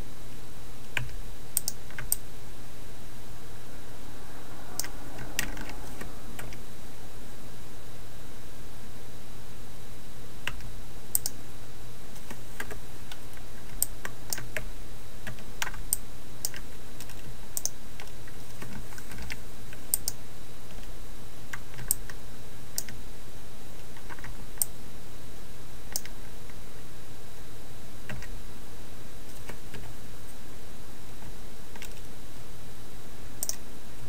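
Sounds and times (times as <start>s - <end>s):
steady hiss and low hum: 0.0s - 34.0s
mouse clicks: 1.0s - 2.2s, 10.5s - 11.4s, 33.4s - 33.6s.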